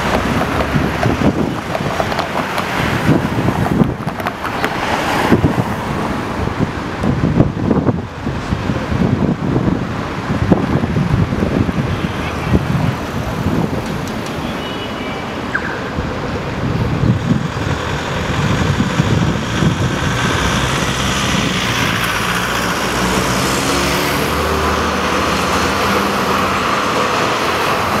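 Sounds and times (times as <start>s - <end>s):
cars pulling away: 0.0s - 8.4s, 15.6s - 28.0s
tram passing: 0.0s - 28.0s.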